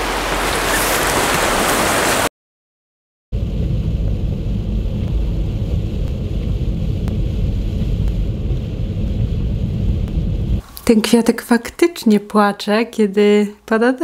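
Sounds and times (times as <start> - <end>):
car road and engine rumble: 3.4 - 10.6.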